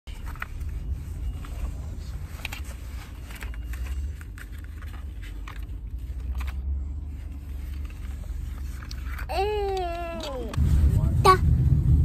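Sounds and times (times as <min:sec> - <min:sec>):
car interior rumble: 0:00.1 - 0:12.0.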